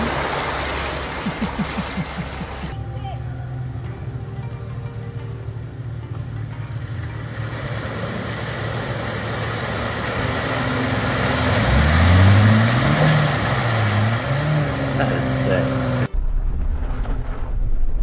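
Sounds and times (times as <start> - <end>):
spinning tyres and sloshing mud: 0.0 - 2.8, 5.4 - 16.1
car engine revving: 6.7 - 16.2.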